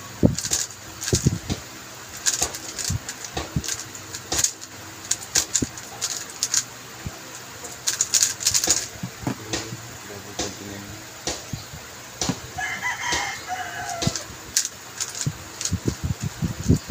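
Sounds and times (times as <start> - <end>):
puzzle cube clicking: 0.2 - 1.6, 2.2 - 6.6, 7.7 - 9.7, 13.2 - 15.8.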